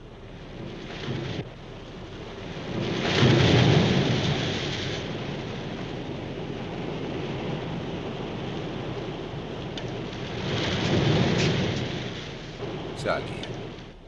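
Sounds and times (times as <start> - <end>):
sea waves breaking: 0.0 - 14.0.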